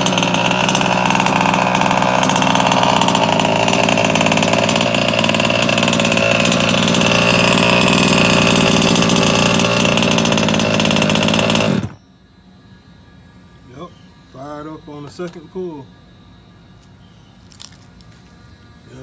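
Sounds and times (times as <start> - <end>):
two-stroke engine idling: 0.0 - 12.0.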